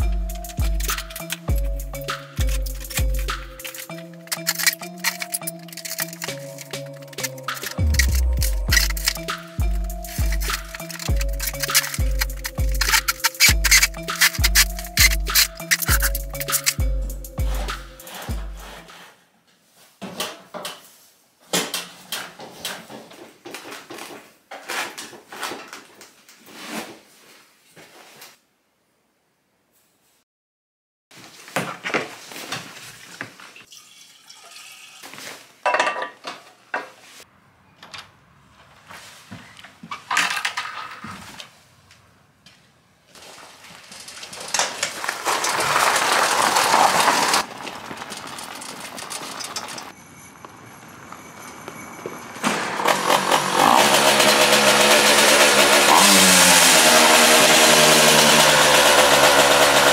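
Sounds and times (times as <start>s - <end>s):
toy tractor rolling: 0.4s - 1.6s, 3.6s - 9.4s, 10.0s - 16.8s, 39.9s - 41.5s, 43.1s - 59.9s
metal parts knocking and rattling: 0.4s - 1.8s, 2.4s - 16.8s, 39.9s - 41.2s, 43.7s - 49.9s
tyres crunching over gravel: 2.4s - 16.8s, 43.1s - 53.7s.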